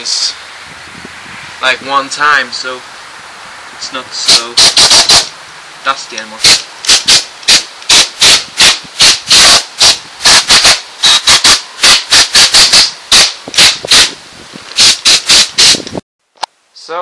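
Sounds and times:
compressed air blasts hissing: 2.8s - 5.7s, 6.3s - 16.0s.

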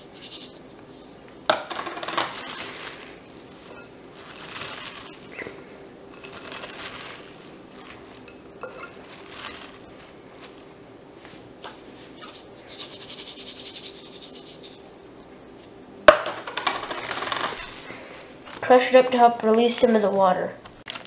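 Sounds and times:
salt pattering: 1.5s - 10.8s, 16.5s - 18.6s
cabbage rustling and crunching: 1.8s - 10.8s, 16.7s - 18.7s.

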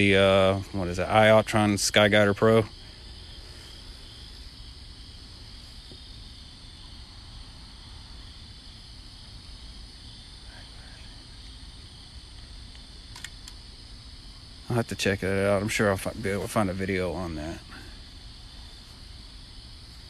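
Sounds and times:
low background rumble: 0.0s - 20.0s
night insects buzzing: 0.0s - 20.0s
faint clicks: 12.3s - 13.6s.

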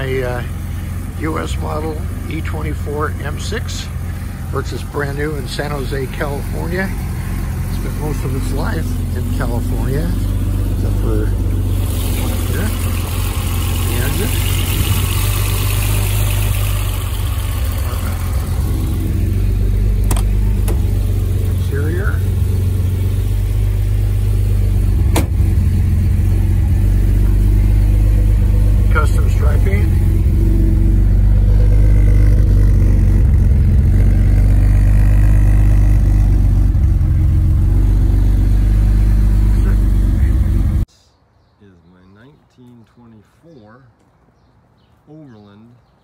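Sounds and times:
car engine idling: 0.0s - 40.9s.

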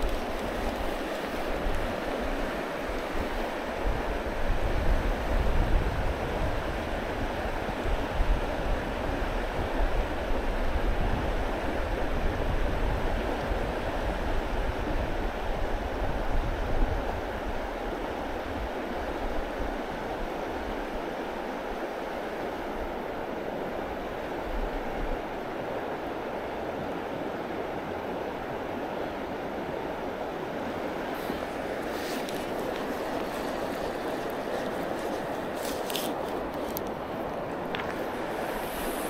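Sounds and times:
stream water rushing: 0.0s - 8.1s, 17.2s - 39.0s
wind rumbling on microphone: 0.0s - 21.4s, 22.6s - 39.0s.

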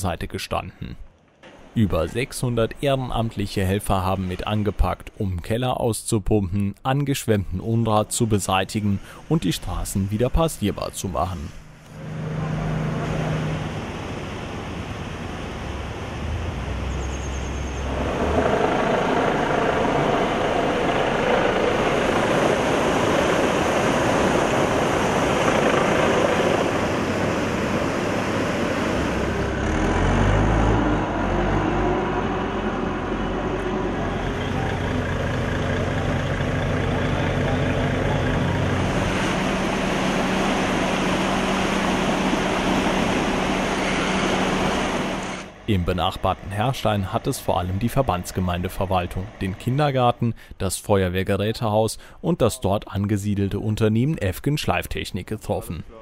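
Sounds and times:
engine droning: 7.6s - 50.7s
rushing floodwater: 12.4s - 17.0s, 19.9s - 31.5s.

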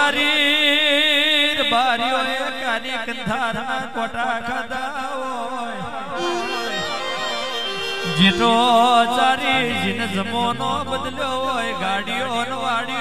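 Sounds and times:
ornamented folk melody: 6.2s - 12.8s
steady drone: 6.2s - 13.0s.

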